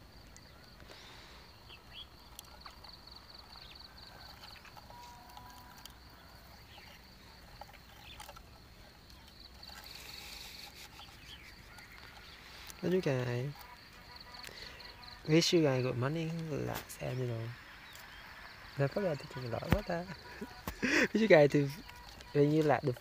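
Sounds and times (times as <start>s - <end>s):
insect chirping trill: 0.0s - 23.0s
light clicks and rustles: 2.2s - 14.9s.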